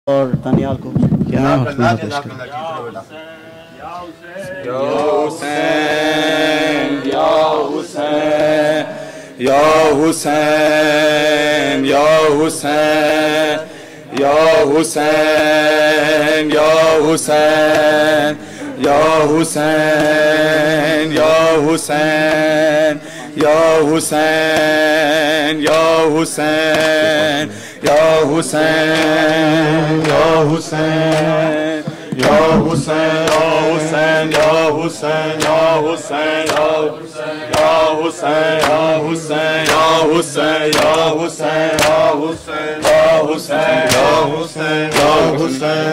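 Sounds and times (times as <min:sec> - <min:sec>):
men chanting a lament through microphone: 0:01.4 - 0:45.9.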